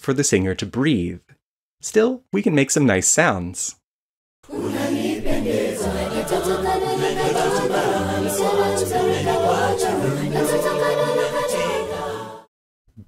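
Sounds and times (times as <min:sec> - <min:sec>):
a cappella group singing: 0:04.5 - 0:12.5.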